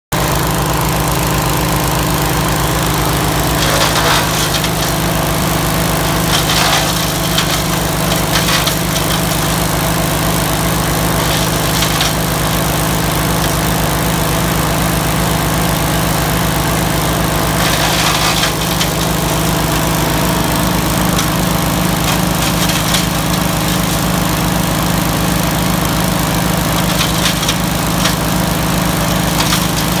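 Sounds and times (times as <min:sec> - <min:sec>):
wood chipper engine running: 0:00.1 - 0:30.0
metal clatter: 0:03.4 - 0:09.8, 0:11.0 - 0:12.6, 0:17.5 - 0:24.8, 0:26.5 - 0:30.0.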